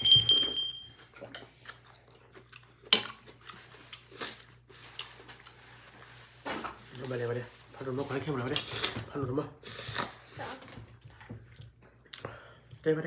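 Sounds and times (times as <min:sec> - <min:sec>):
soft chewing and mouth sounds: 0:01.0 - 0:13.0.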